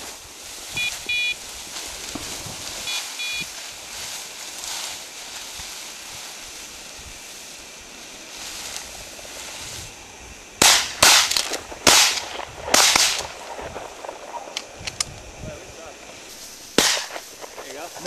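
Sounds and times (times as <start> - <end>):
shotgun blasts with echo: 10.6 - 13.8, 16.7 - 17.3.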